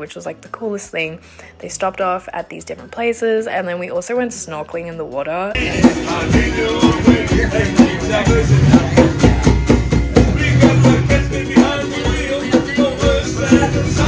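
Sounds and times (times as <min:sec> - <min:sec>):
person singing: 0:05.6 - 0:14.0
steady drum beat: 0:05.6 - 0:14.0.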